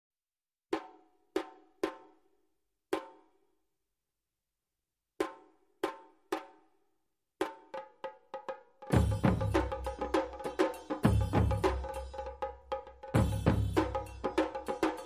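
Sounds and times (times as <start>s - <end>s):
pitched drum strikes: 8.9s - 15.0s.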